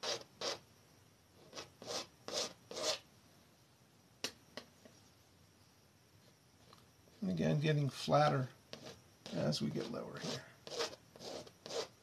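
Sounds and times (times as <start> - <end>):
brush rubbing on canvas: 8.7 - 11.9.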